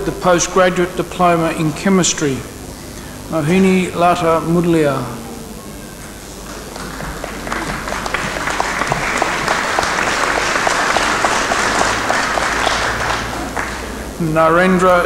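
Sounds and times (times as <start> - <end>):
audience applauding: 6.4 - 14.2.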